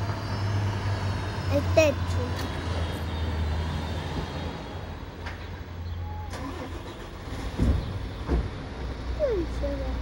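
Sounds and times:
vehicle engine rumbling: 0.0 - 10.0.

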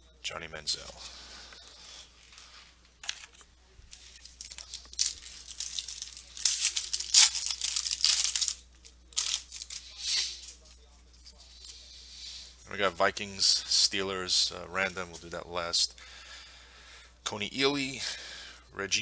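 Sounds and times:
foil wrapper tearing and crinkling: 3.3 - 10.5.

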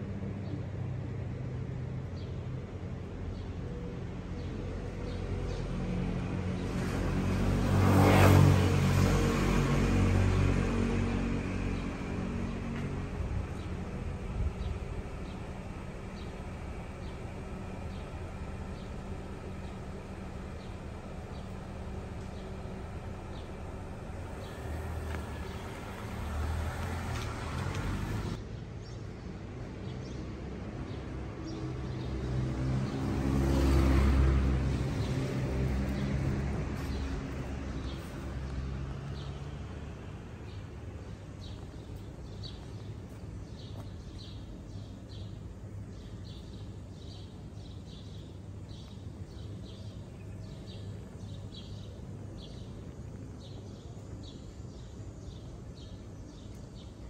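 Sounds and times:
passing vehicle rumble: 0.0 - 28.5, 31.4 - 57.0
small birds chirping: 10.6 - 29.0, 34.7 - 57.0.

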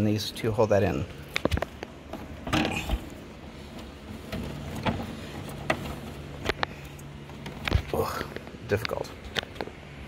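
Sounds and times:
plastic rubbing and scraping: 3.7 - 6.7.

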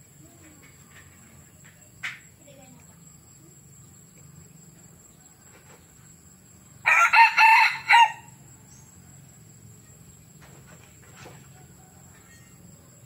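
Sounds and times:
rooster crowing: 6.8 - 8.6, 11.4 - 13.0.

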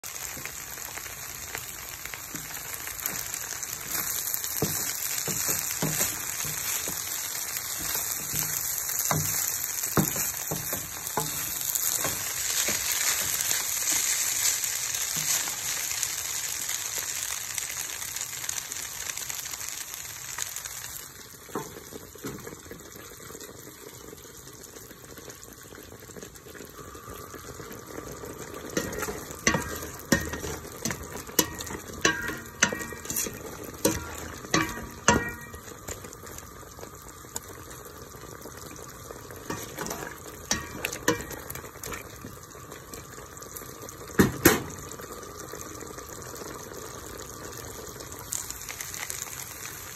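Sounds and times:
food simmering in a pot: 0.0 - 49.9
noodles sizzling in a pan: 0.0 - 49.9
utensil knocking against pot: 28.8 - 35.7.

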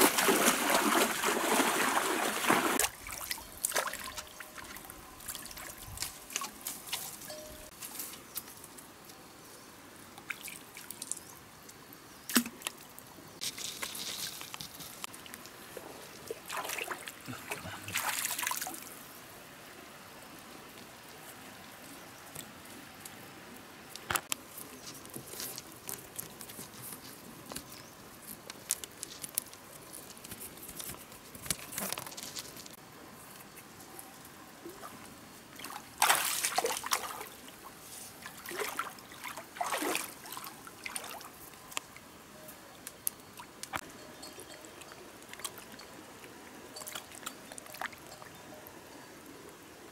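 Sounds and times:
water sloshing and splashing: 0.0 - 7.3, 16.2 - 18.9, 34.6 - 41.6
stream trickling: 0.0 - 9.1, 9.9 - 49.9.

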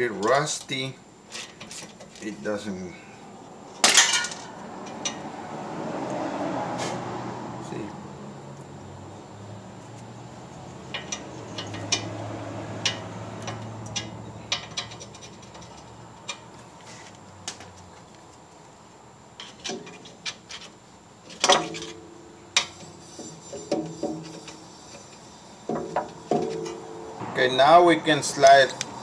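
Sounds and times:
metal clank: 3.8 - 5.2, 10.9 - 12.2, 12.8 - 16.5, 19.4 - 20.7, 21.3 - 27.4
metal clicks and taps: 10.9 - 12.1, 12.8 - 16.5.

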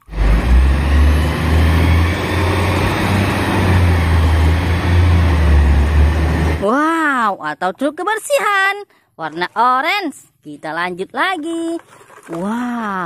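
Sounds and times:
garbage truck engine rumbling: 0.0 - 6.8.

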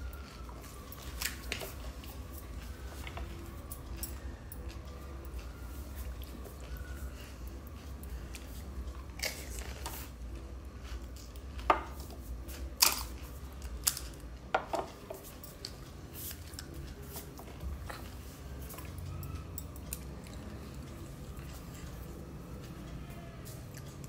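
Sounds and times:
low steady hum: 0.0 - 24.0
crisp fried shells cracking: 12.7 - 14.4.

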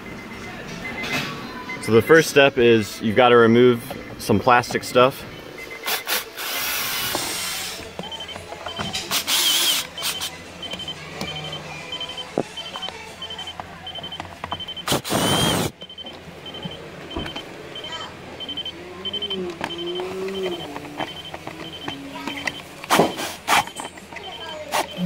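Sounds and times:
high electronic beeping: 5.3 - 25.0
cordless drill whirring: 9.1 - 10.2, 14.9 - 15.7.

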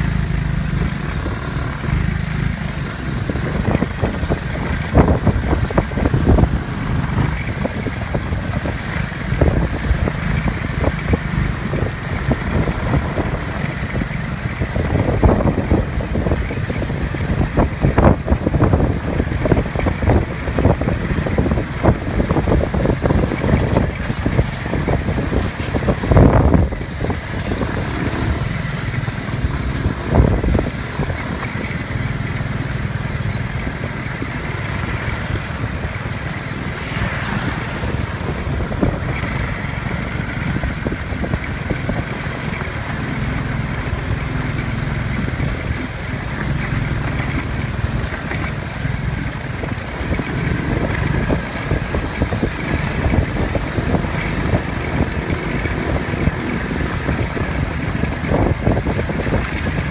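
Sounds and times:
buggy engine running: 0.0 - 59.9
road noise: 0.0 - 59.9.

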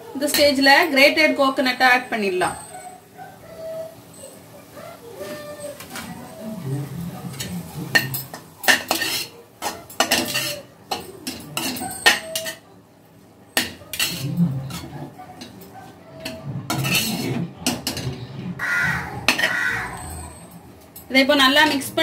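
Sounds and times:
metal spatula scraping a pan: 7.3 - 12.6, 13.6 - 15.6, 16.2 - 18.6.

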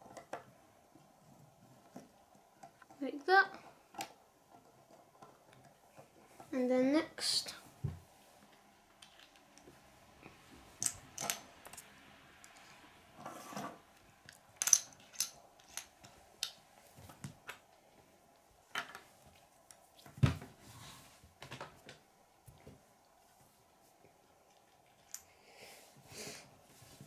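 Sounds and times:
plastic pieces clicking on wood: 14.3 - 16.6.

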